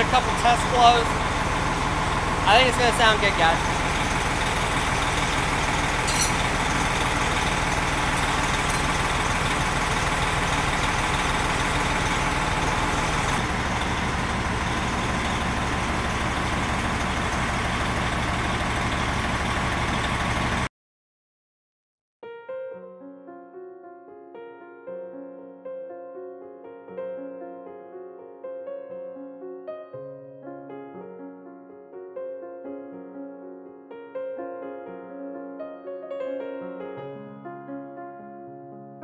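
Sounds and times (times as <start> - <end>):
air system building pressure: 0.0 - 20.7
diesel engine idling: 0.0 - 20.7.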